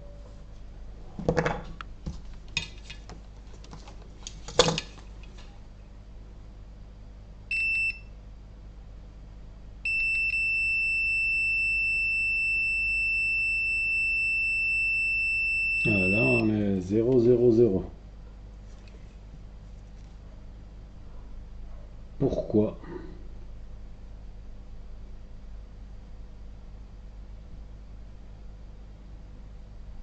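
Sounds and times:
multimeter beep: 7.5s - 8.2s, 9.8s - 16.6s
steady continuity beep: 7.5s - 8.2s, 9.8s - 16.6s.

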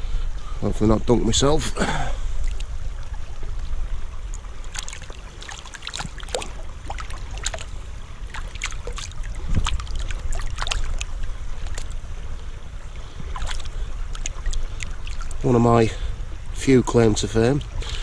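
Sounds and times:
river water splashing and sloshing: 1.8s - 18.0s
small sharp splashes: 4.3s - 12.1s, 13.0s - 15.6s.

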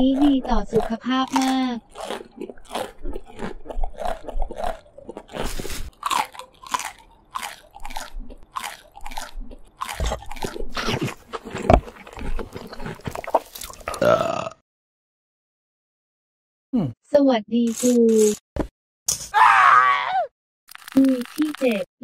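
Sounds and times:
crunchy vegetables being chewed: 0.0s - 14.4s.

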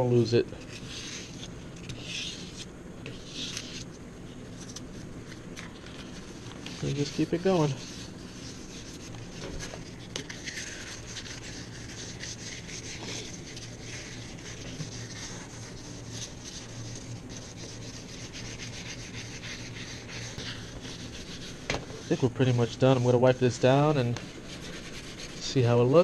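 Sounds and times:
sandpaper rasping on metal: 6.8s - 9.1s, 9.8s - 25.8s.

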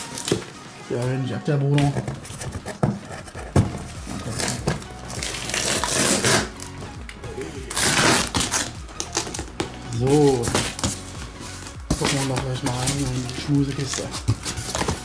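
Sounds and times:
cardboard rustling: 0.0s - 6.8s, 7.7s - 15.0s
packing tape ripping off box: 4.2s - 6.8s, 7.7s - 9.7s.

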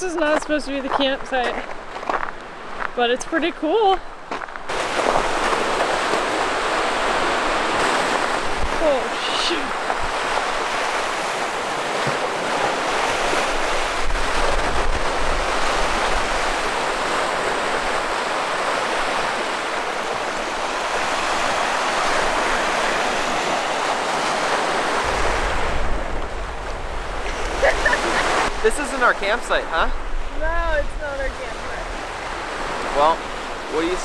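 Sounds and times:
waves breaking on shore: 0.0s - 34.0s
wind buffeting microphone: 4.1s - 8.9s, 12.4s - 18.4s, 24.8s - 28.7s, 29.9s - 33.7s.

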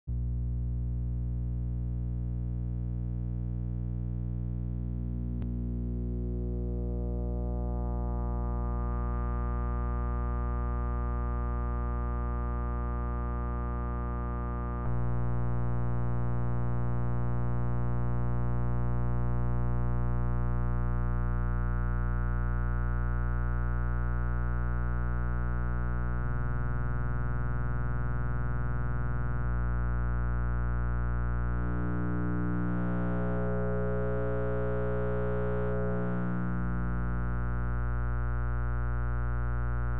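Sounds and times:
low synth drone with overtones: 4.3s - 15.2s, 31.5s - 37.6s.

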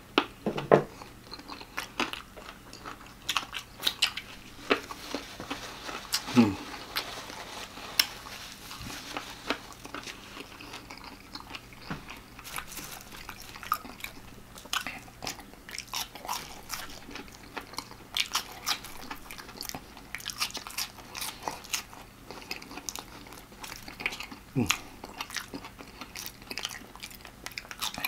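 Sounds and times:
person chewing crispy food: 0.9s - 28.0s
crust crunching: 2.7s - 14.4s.

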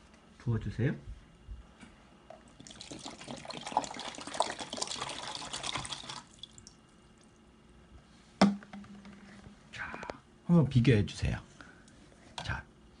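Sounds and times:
water splashing into plastic tub: 2.5s - 6.8s.

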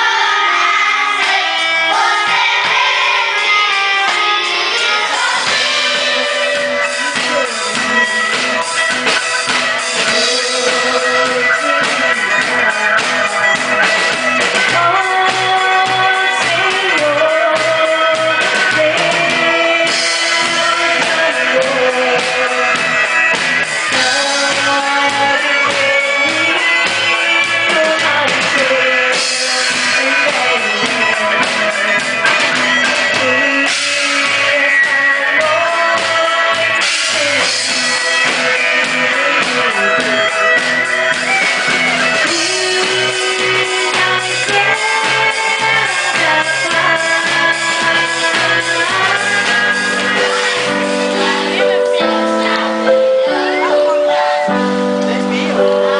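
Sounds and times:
drum kit beat: 0.0s - 55.9s
electric guitars: 0.0s - 55.9s
woman singing: 10.0s - 13.9s, 14.6s - 40.6s, 42.2s - 55.9s.

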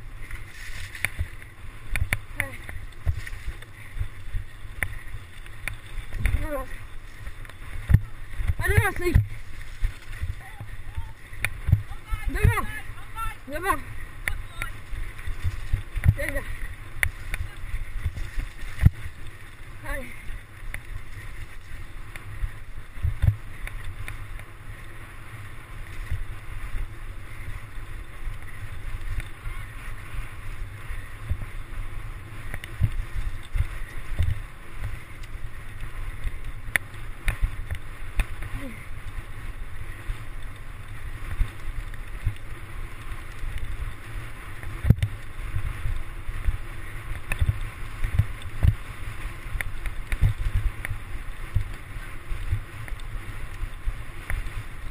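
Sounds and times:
bike tyres rumbling on trail: 0.0s - 54.9s
wind on microphone: 0.0s - 54.9s
bike knocks and rattles: 0.3s - 6.6s, 11.4s - 12.6s.

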